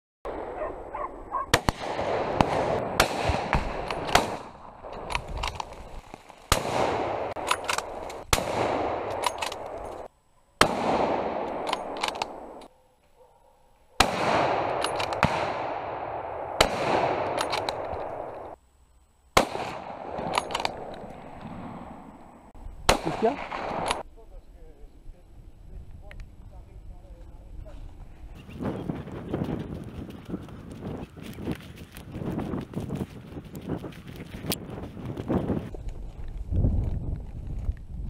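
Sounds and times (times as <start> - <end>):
rifle shots echoing: 0.3 - 5.8, 6.5 - 12.6, 14.0 - 18.6, 19.4 - 22.1, 22.8 - 24.1.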